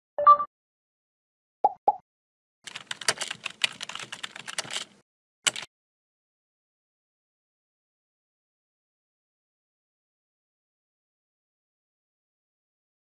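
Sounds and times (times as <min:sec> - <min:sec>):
computer keyboard typing: 0:02.7 - 0:05.7.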